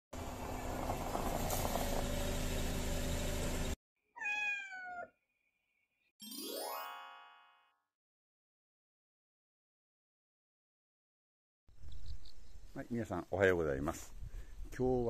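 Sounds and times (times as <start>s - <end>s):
outdoor noise with low hum: 0.2s - 3.8s
cat meowing: 4.1s - 5.2s
rising chime: 6.2s - 7.5s.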